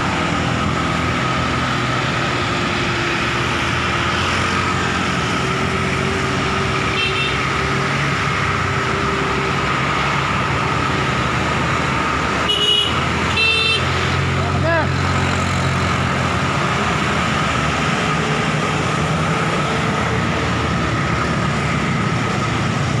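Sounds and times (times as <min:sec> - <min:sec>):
road and wind noise: 0:00.0 - 0:23.0
vehicle engine hum: 0:00.0 - 0:23.0
car horn toots: 0:12.5 - 0:13.9.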